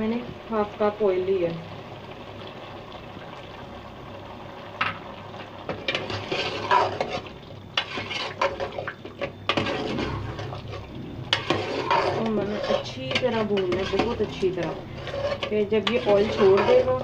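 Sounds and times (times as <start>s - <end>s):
faint steady hiss: 0.0s - 17.0s
metal ladle scraping a pot: 5.7s - 17.0s.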